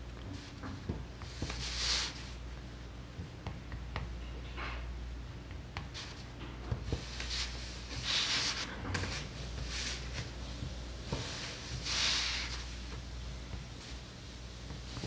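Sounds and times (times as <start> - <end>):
paper rubbing and sliding: 1.4 - 2.3, 7.0 - 10.3, 11.1 - 12.9.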